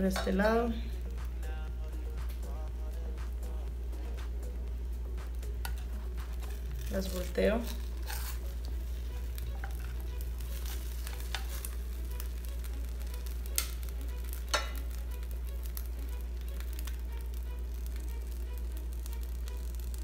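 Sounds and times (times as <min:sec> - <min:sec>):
low hum: 0:00.0 - 0:20.0
tongs clicking on dish: 0:05.6 - 0:06.7, 0:09.6 - 0:10.0, 0:13.5 - 0:15.0.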